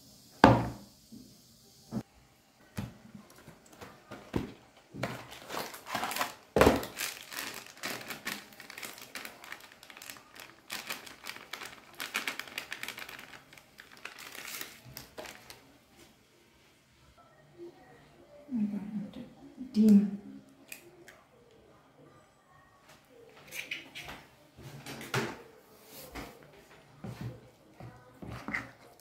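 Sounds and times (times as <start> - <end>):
cardboard box and foil rustling: 3.8 - 15.7.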